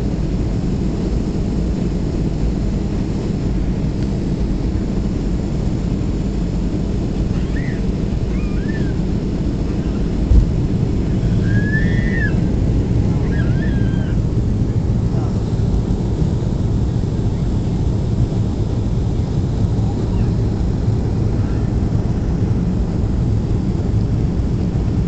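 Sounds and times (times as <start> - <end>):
airplane cabin engine rumble: 0.0 - 25.0
brief thump: 10.3 - 10.6.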